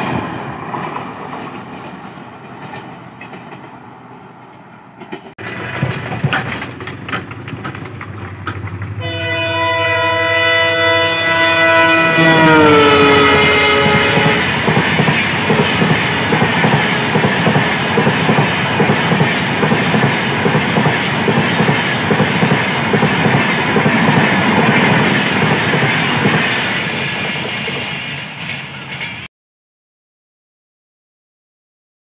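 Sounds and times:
train wheels clacking on rails: 0.0s - 9.4s, 13.1s - 29.3s
train horn: 9.0s - 14.7s, 15.8s - 17.2s.

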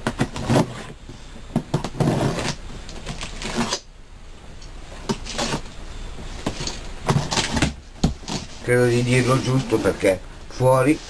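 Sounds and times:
cardboard flaps clicking and knocking: 0.0s - 0.8s, 1.5s - 3.8s, 6.4s - 8.6s
cardboard scraping and rustling: 0.0s - 3.9s, 5.0s - 11.0s
knife slitting packing tape: 2.1s - 3.9s.

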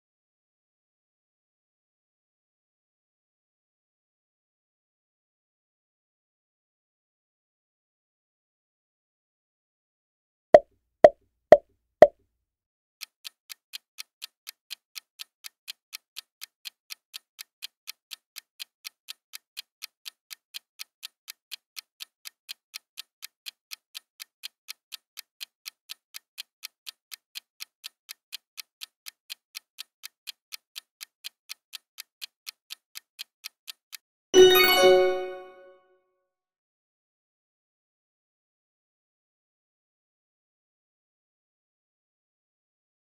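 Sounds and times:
clock ticking: 13.1s - 35.4s.

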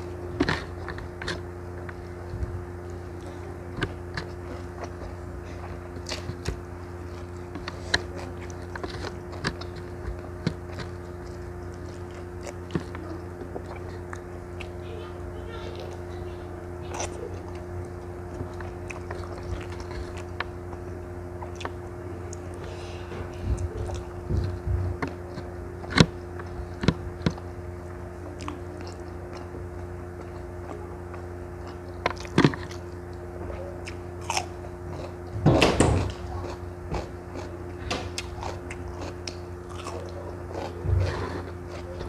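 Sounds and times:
wet chewing: 0.0s - 33.2s, 33.8s - 42.0s
steady low hum: 0.0s - 42.0s
crunchy cucumber biting: 35.8s - 42.0s.

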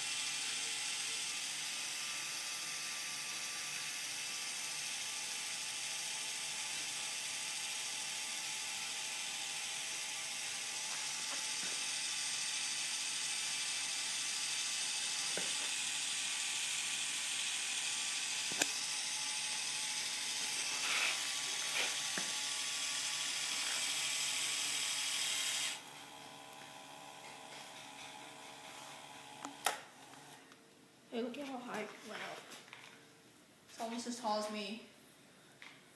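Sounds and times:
small electric motor running: 0.0s - 30.4s.

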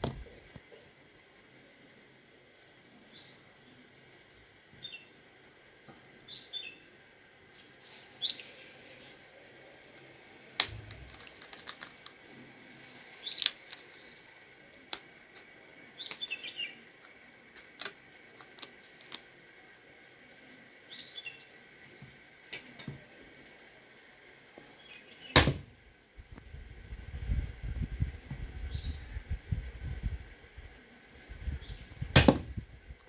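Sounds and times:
small birds chirping: 4.8s - 5.2s, 6.2s - 6.9s, 7.8s - 9.0s, 11.9s - 14.4s, 15.4s - 17.0s, 20.5s - 21.6s, 28.6s - 29.2s.

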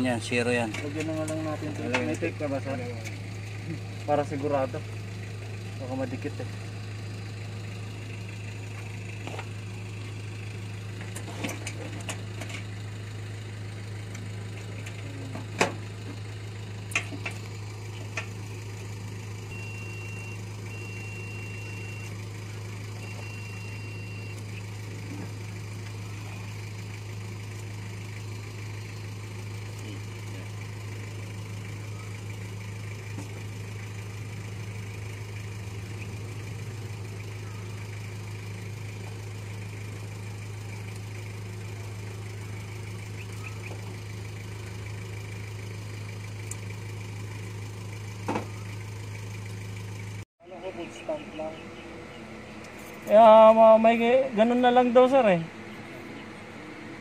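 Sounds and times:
low machine hum: 0.0s - 57.0s
short high beeps: 19.5s - 22.1s, 23.0s - 24.4s.

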